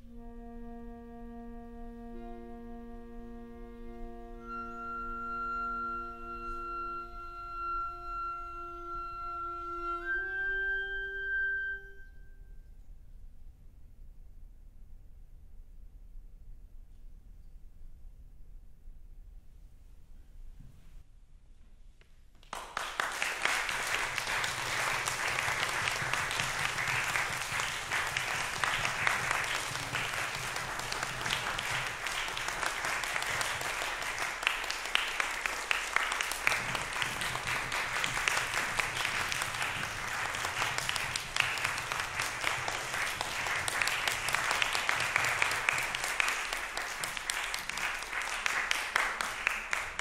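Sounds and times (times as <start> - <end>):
audience applause: 22.4 - 50.0.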